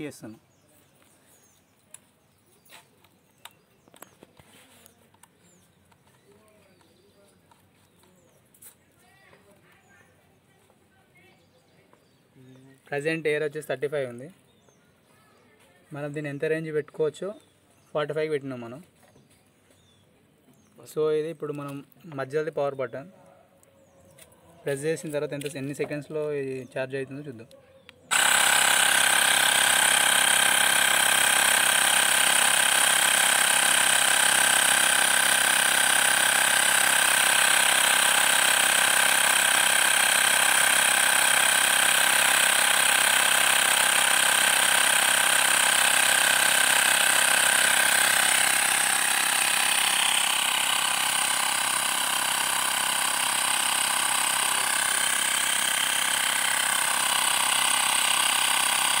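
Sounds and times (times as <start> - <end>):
electric air compressor running: 0.0 - 0.4, 24.7 - 26.5, 28.0 - 59.0.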